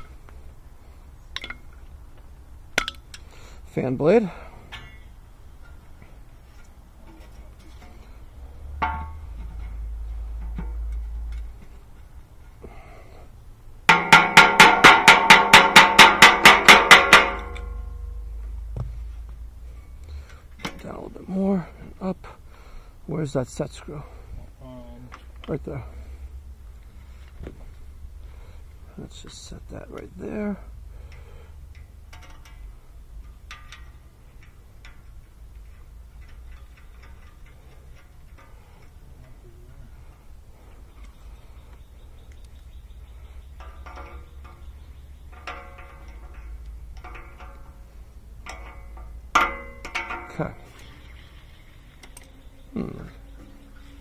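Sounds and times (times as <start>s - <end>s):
low steady rumble: 0.0s - 54.0s
metallic clicks of fan blade: 30.9s - 39.4s, 40.1s - 50.9s.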